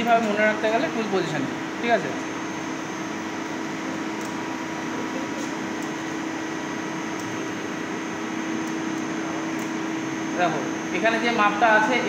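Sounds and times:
lathe humming with steady tone: 0.0s - 12.0s.

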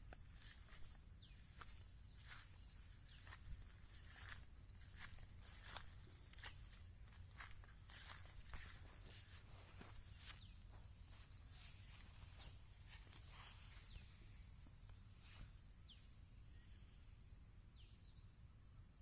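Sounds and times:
footsteps on dry soil: 0.0s - 14.2s
insect drone: 0.0s - 19.0s.

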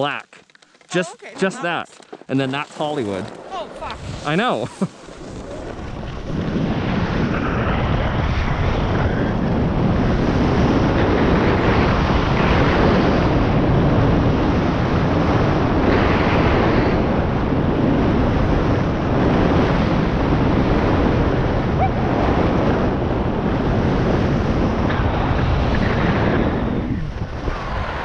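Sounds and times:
skis scraping on snow: 0.9s - 7.7s
wind rushing over microphone: 3.1s - 28.0s.

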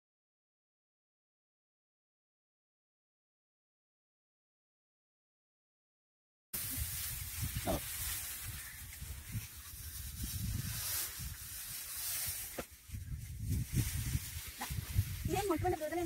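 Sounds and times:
dry straw rustling: 6.6s - 16.0s.

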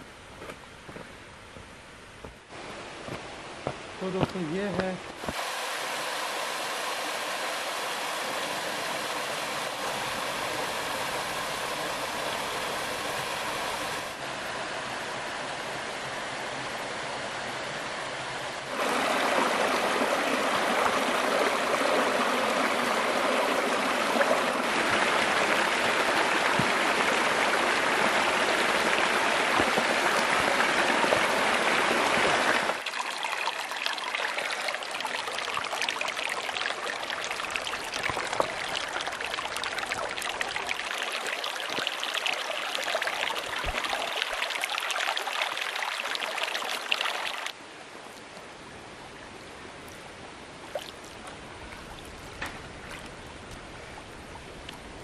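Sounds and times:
stream water trickling over rocks: 18.5s - 48.5s, 49.8s - 55.0s.

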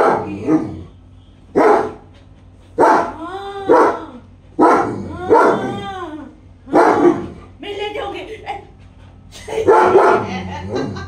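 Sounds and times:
dog barking: 0.0s - 0.6s, 1.5s - 2.0s, 2.8s - 4.0s, 4.6s - 5.7s, 6.7s - 7.4s, 9.7s - 10.4s.

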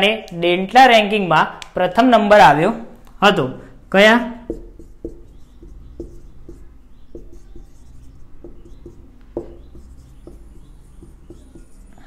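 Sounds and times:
marker squeaking on whiteboard: 4.4s - 12.0s.

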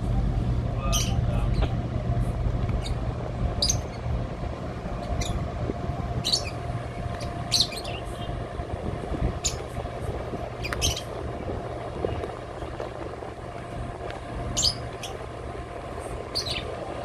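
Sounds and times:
faint steady hum: 0.0s - 17.0s
ship diesel engines droning: 0.0s - 17.0s
high bird chirps: 7.2s - 8.3s, 16.3s - 16.7s.

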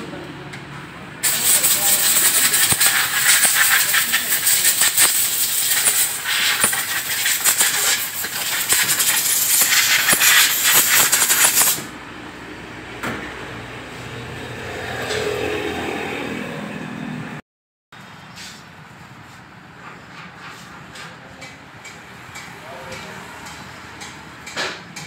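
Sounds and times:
drive chain being scrubbed: 1.2s - 11.9s.

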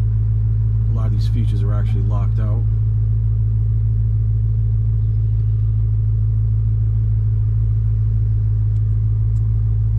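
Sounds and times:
car engine idling: 0.0s - 9.9s.

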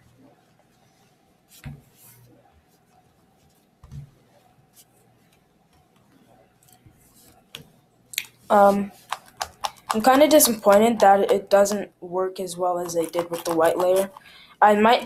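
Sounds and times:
plastic puzzle clicking and scraping: 8.6s - 11.8s.

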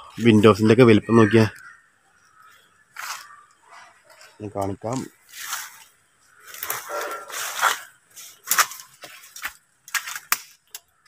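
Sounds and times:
footsteps through undergrowth: 2.4s - 10.6s
plants rustling: 2.4s - 10.9s
sharp crunches and snaps: 2.4s - 11.0s.

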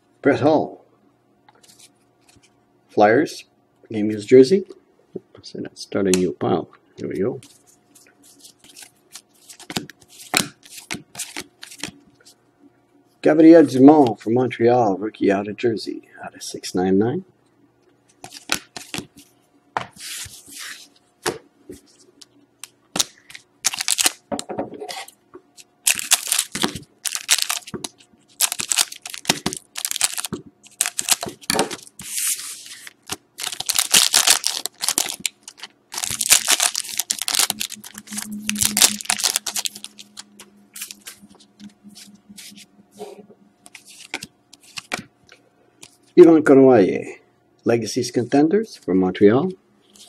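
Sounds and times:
foil wrappers ripping and crinkling: 23.0s - 24.2s, 25.6s - 41.2s.

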